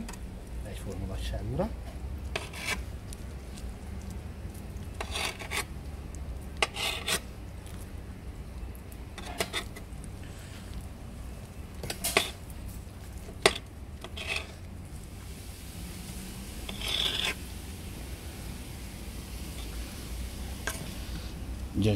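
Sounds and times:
knife scraping on stone board: 0:02.3 - 0:02.8, 0:05.0 - 0:05.7, 0:06.6 - 0:07.3, 0:09.2 - 0:09.8, 0:11.8 - 0:12.4, 0:13.2 - 0:14.6, 0:16.6 - 0:17.4.

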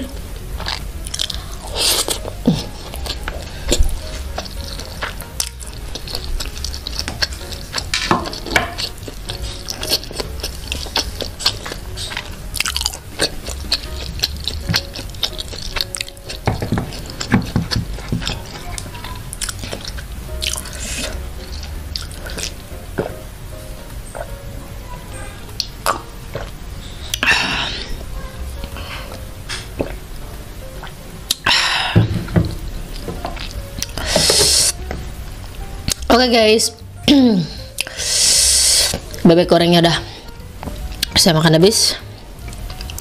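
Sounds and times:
crunchy chewing: 0:00.6 - 0:23.2, 0:42.4 - 0:43.0.

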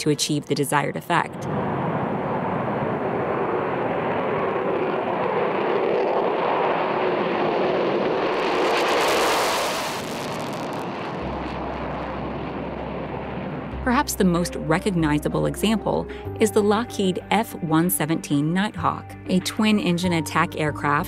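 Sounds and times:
jet engines roaring at takeoff: 0:00.0 - 0:13.8.

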